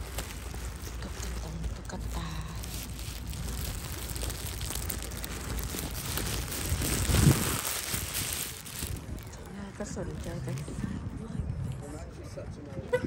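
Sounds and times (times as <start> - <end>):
wind buffeting microphone: 0.4 - 13.0.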